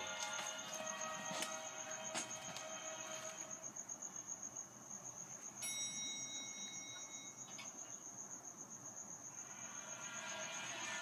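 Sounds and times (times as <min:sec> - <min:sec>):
cricket chirping: 0:00.0 - 0:11.0
chime-like tone: 0:05.6 - 0:07.5.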